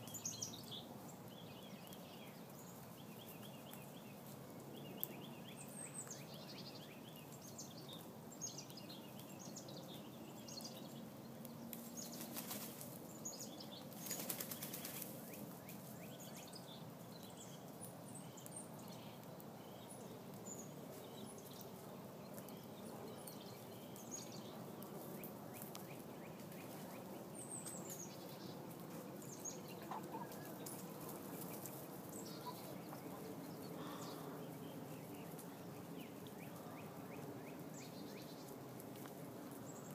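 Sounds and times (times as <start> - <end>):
quiet outdoor background noise: 0.0 - 39.9
small birds chirping: 0.0 - 39.9.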